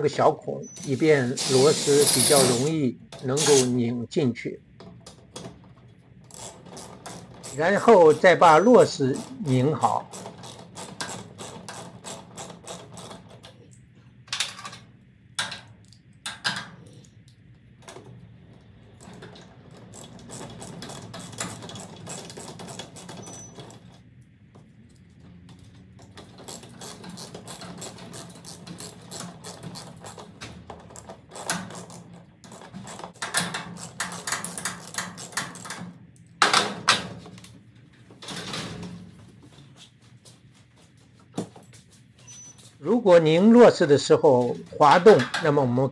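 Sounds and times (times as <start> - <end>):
ratchet wrench clicking: 1.4 - 2.7, 6.3 - 13.1, 26.4 - 30.2.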